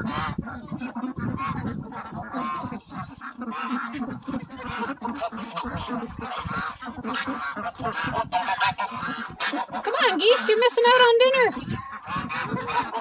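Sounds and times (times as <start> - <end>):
ducks quacking: 0.0 - 13.0
geese honking: 0.0 - 13.0.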